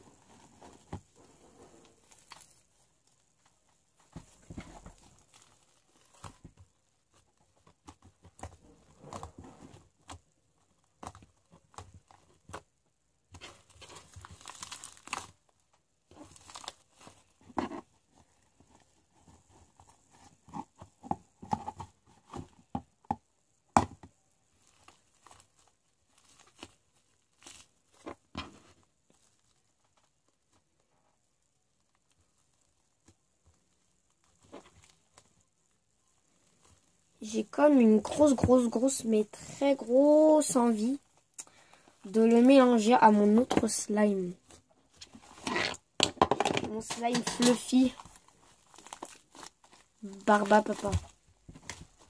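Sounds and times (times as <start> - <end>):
hands kneading sticky slime: 46.7 - 51.2.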